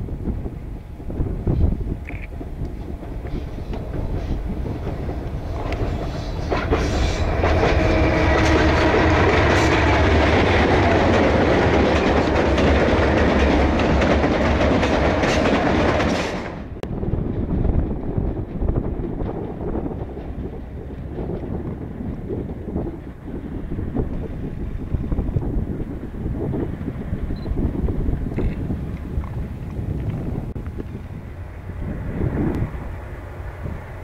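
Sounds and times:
diesel locomotive engine rumble: 0:00.0 - 0:34.0
wind buffeting microphone: 0:00.0 - 0:34.0
wheels clicking over rail joints: 0:01.2 - 0:25.9.

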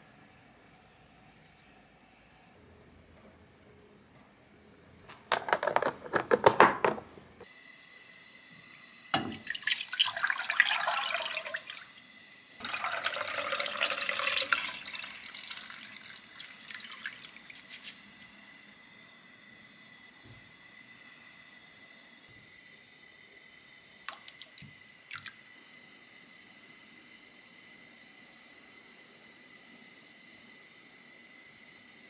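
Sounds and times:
liquid pouring into saucepan: 0:08.9 - 0:12.0, 0:12.6 - 0:17.7.

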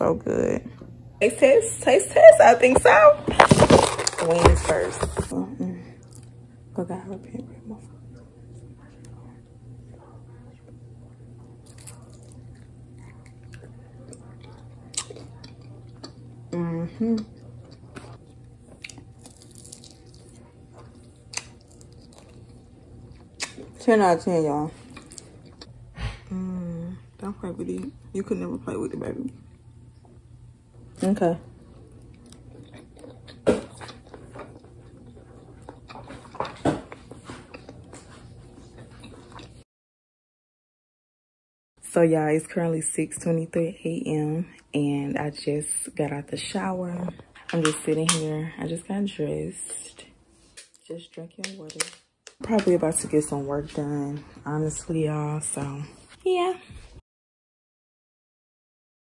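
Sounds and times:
crisp crunches: 0:03.4 - 0:05.3, 0:18.8 - 0:20.4
wet chewing: 0:11.4 - 0:16.2, 0:17.2 - 0:23.8, 0:24.8 - 0:25.7, 0:31.8 - 0:39.6.

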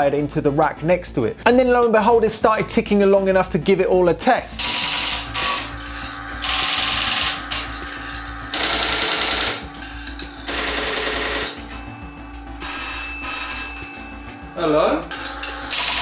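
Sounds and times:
telephone bell ringing: 0:10.5 - 0:16.0.

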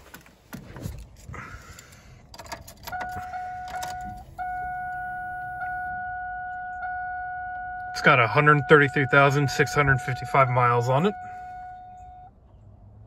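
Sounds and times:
keys jingling and clicking: 0:02.2 - 0:04.2
car warning chime tone: 0:02.8 - 0:12.4.

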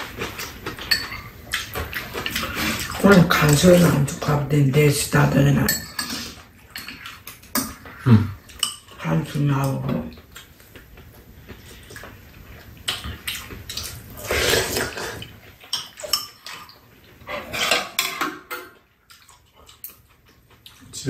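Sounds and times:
eating and slurping: 0:00.0 - 0:04.4, 0:06.0 - 0:21.0
spoons clinking against bowls: 0:00.8 - 0:01.4, 0:05.5 - 0:07.9, 0:08.5 - 0:09.8, 0:15.7 - 0:16.6.

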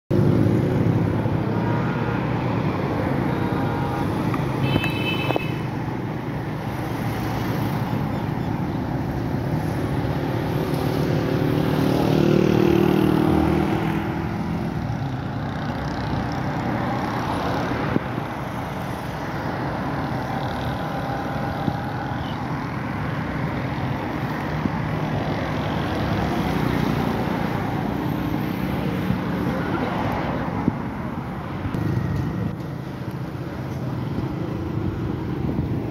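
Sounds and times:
cars passing on road: 0:00.1 - 0:35.9
loud vehicle passing: 0:09.5 - 0:32.6.

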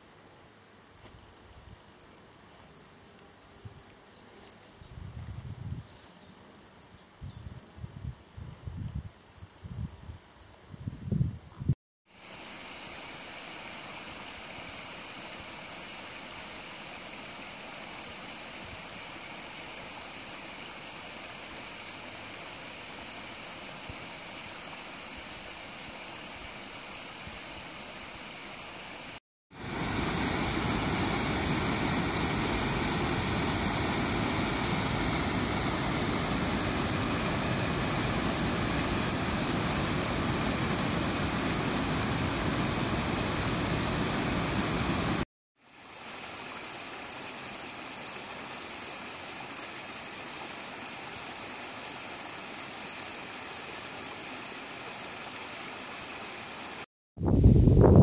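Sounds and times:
river water over stones: 0:12.1 - 0:56.8
small waterfall splashing into pool: 0:12.1 - 0:56.9
white water rushing over ledge: 0:28.9 - 0:45.2.

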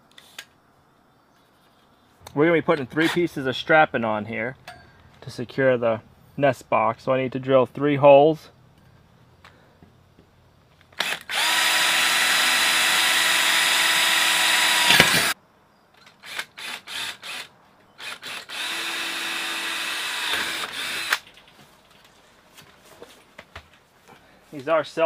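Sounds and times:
cordless drill boring into steel: 0:11.0 - 0:15.4, 0:16.2 - 0:21.2.

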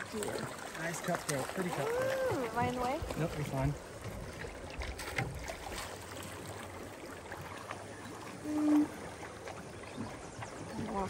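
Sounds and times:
river water rushing and lapping: 0:00.0 - 0:11.0
small water splashes: 0:00.0 - 0:11.0.

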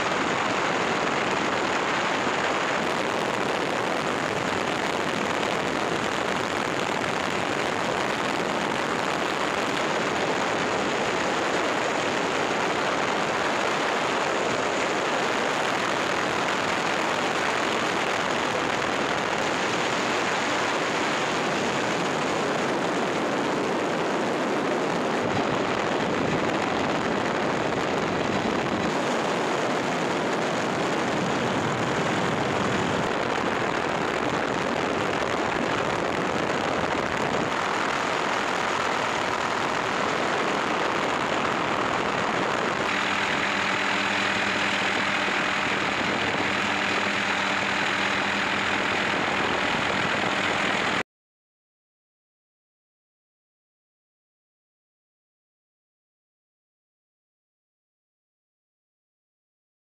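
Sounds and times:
helicopter engine and rotor: 0:00.0 - 0:51.0
steady humming tones: 0:25.4 - 0:51.0.

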